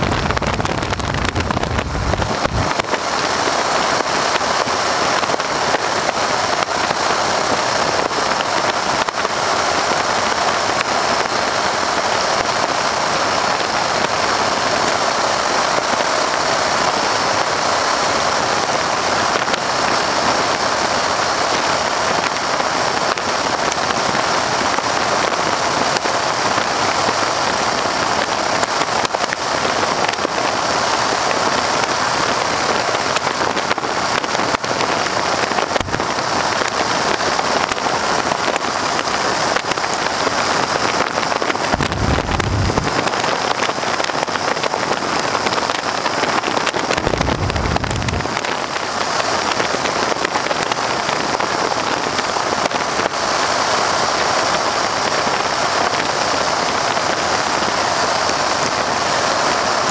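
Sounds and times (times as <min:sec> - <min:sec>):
wind buffeting microphone: 0:00.0 - 0:03.0, 0:41.6 - 0:43.4, 0:46.7 - 0:48.6
radial engine running: 0:23.4 - 0:51.0.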